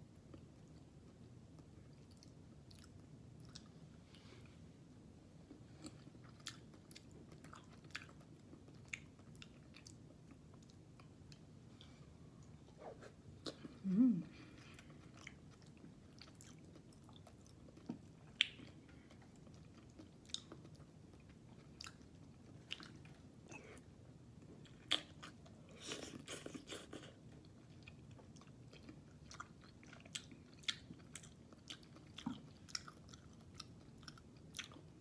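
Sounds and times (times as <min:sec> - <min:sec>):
person chewing food: 0:00.3 - 0:04.6, 0:05.4 - 0:35.0.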